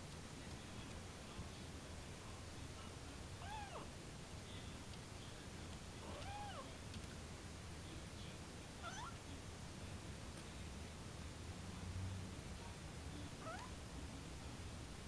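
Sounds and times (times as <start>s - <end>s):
kitten meowing: 3.4s - 3.8s, 6.1s - 6.6s, 8.8s - 9.2s, 13.4s - 13.7s.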